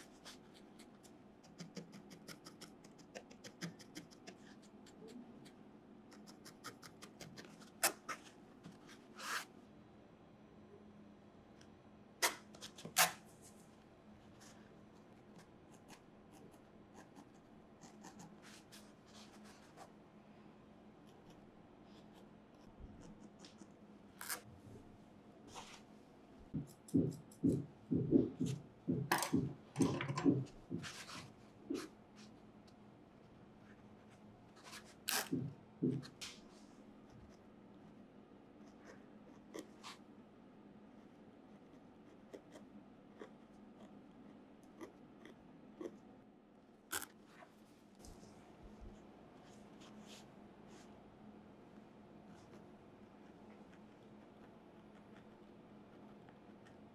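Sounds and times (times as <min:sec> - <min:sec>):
felting needle poking wool: 0:00.0 - 0:09.4, 0:26.5 - 0:31.9
felting needle scratching wool: 0:00.0 - 0:09.5, 0:15.3 - 0:20.0, 0:21.0 - 0:24.5, 0:25.5 - 0:25.8, 0:38.6 - 0:40.0.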